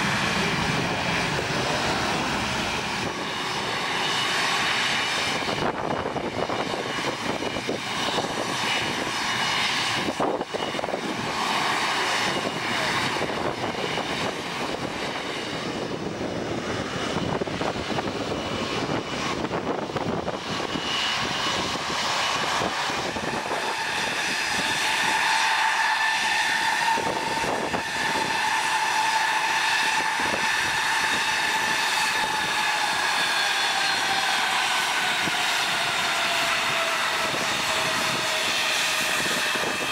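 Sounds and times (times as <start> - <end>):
jet engines running: 0.0 - 39.9
propeller plane landing: 0.0 - 39.9.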